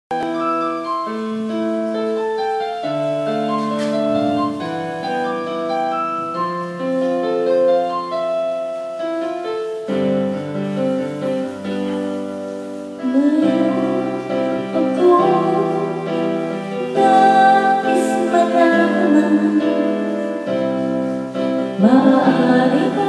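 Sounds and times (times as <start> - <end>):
slow piano piece: 0.1 - 23.0.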